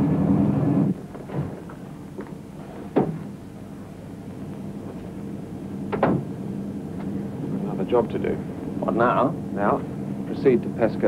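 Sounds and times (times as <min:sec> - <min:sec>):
steady low hum: 0:00.0 - 0:11.0
door shutting thud: 0:05.9 - 0:06.3.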